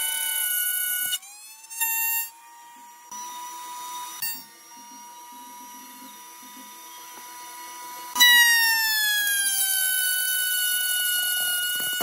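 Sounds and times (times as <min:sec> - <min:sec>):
router whining: 0:00.0 - 0:12.0.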